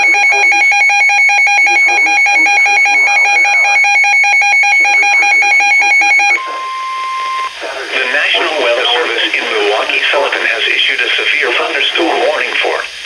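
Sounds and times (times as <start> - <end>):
shrill two-pitch alarm beeping: 0.0 - 7.5.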